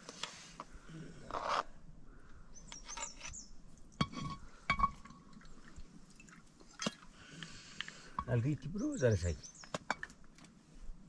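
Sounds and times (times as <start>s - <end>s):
high bird chirps: 2.6s - 3.5s.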